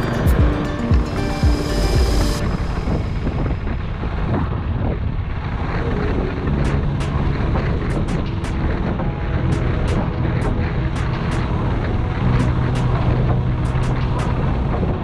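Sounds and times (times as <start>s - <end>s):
motorcycle engine running: 0.0s - 2.4s
wind rush on microphone: 0.0s - 15.0s.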